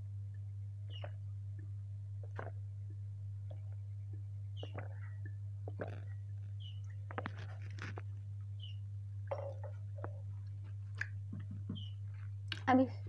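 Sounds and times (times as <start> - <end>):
steady low hum: 0.0 - 13.0
person swallowing water: 2.2 - 8.1
glass knocking and clicking: 9.3 - 10.2.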